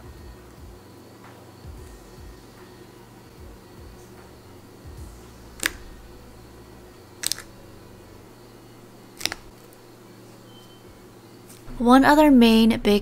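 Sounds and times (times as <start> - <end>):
wet clicks of fingers in slime: 5.6 - 5.8, 7.2 - 7.5.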